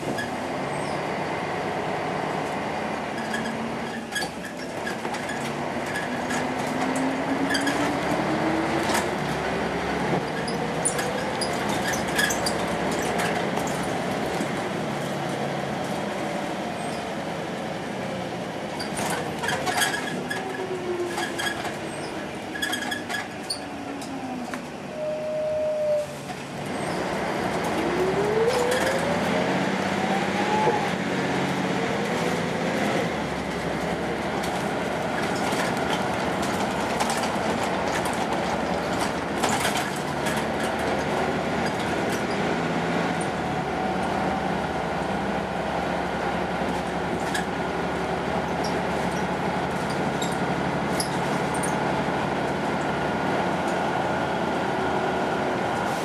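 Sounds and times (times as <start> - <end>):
bus diesel engine accelerating: 0.0 - 56.0
interior rattles and clicks: 33.4 - 42.4.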